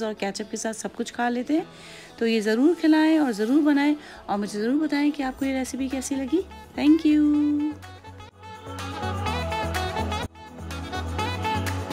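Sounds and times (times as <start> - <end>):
music with bass and steady beat: 6.5 - 11.9.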